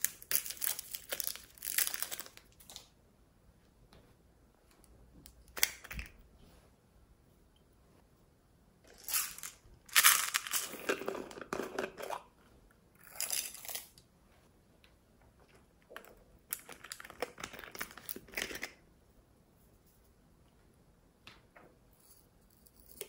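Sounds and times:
plastic containers crinkling: 0.0 - 2.9, 8.9 - 12.3.

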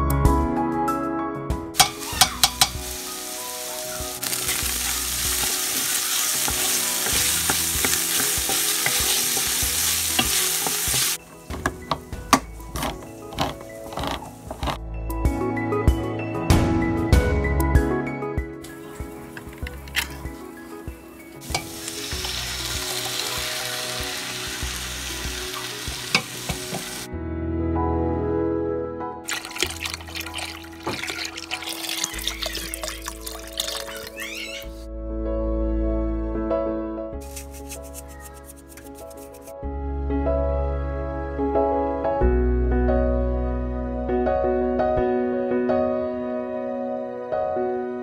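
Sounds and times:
wooden spoon stirring: 1.8 - 3.0, 4.2 - 14.8, 29.3 - 34.2, 37.2 - 39.5
vegetables sizzling in a pot: 1.8 - 14.8, 18.7 - 27.1, 29.3 - 34.5.

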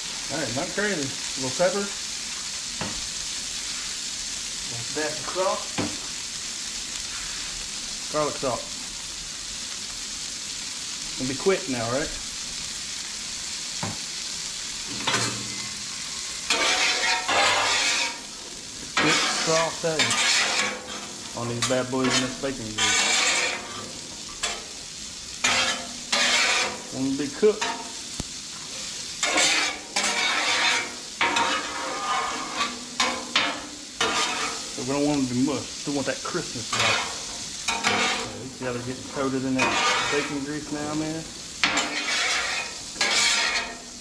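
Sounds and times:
vegetables sizzling on griddle: 0.0 - 44.0
metal spatulas scraping griddle: 14.9 - 18.3, 18.9 - 24.7, 25.4 - 27.9, 28.7 - 35.2, 36.3 - 44.0.

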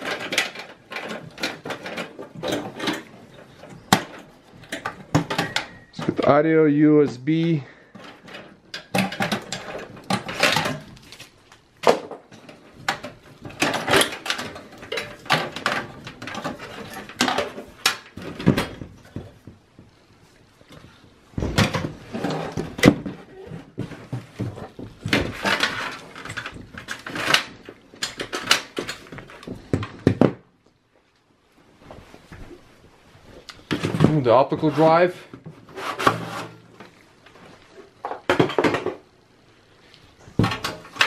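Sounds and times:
cables clicking and rattling in metal case: 0.0 - 30.2.

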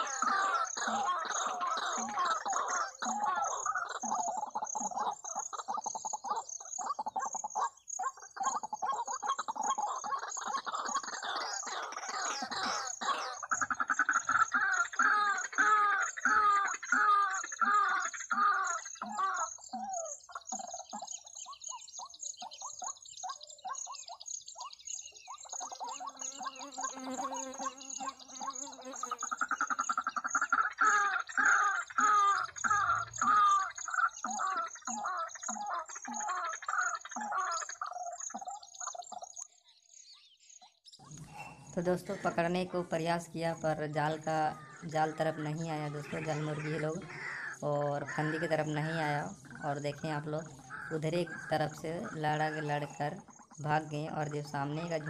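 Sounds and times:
waterhen calls from speaker: 44.2 - 53.8.

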